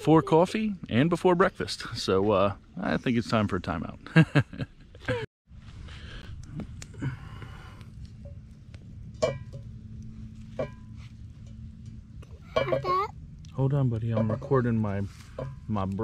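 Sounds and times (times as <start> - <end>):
steady low rumble: 0.0 - 16.0
man laughing: 3.5 - 5.3.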